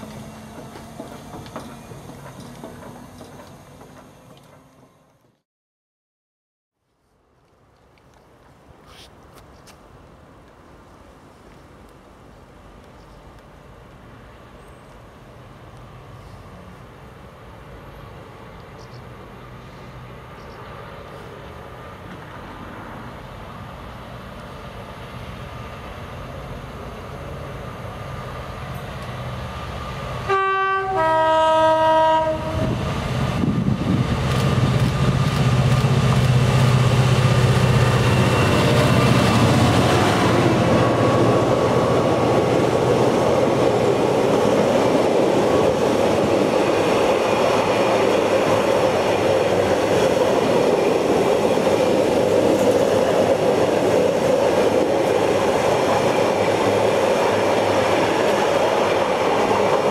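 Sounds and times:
diesel locomotive engine drone: 0.0s - 5.4s, 9.9s - 59.9s
two-tone train horn: 30.2s - 32.8s.

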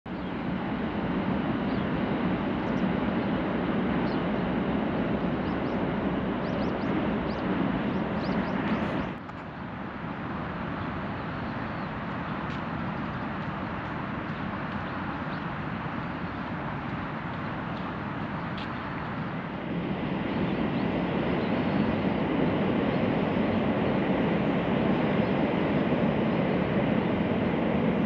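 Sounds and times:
small birds chirping: 0.1s - 0.5s, 1.4s - 2.0s, 2.6s - 4.4s, 5.0s - 9.7s, 10.8s - 13.5s, 14.3s - 16.5s.

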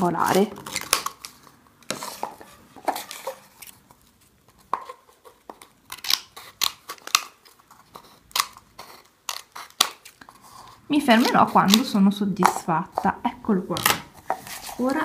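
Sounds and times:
scissors snipping paper: 5.6s - 10.4s, 11.1s - 12.5s.

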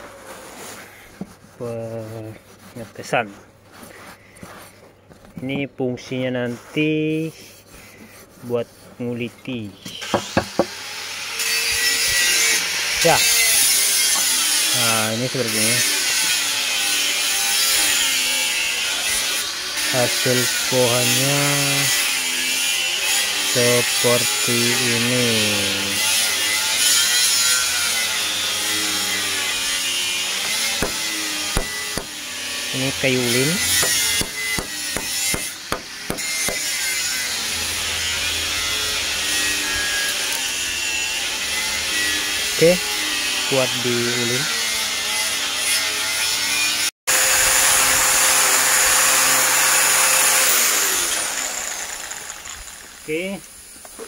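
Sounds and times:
knife scraping hard wood: 0.0s - 5.6s, 6.3s - 9.1s, 29.2s - 37.3s
angle grinder whining: 9.8s - 53.4s
knife blade scraping wood: 29.2s - 37.2s.

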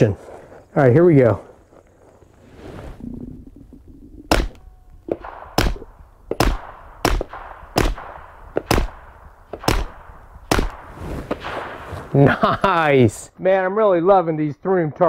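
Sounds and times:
suppressed pistol shots: 4.3s - 11.8s.

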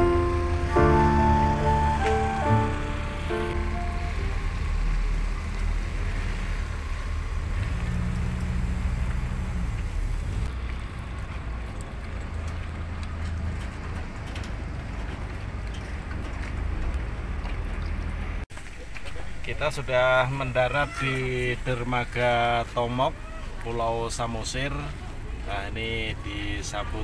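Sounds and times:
water noise: 0.0s - 19.4s
boat engine rumbling: 0.0s - 20.3s.

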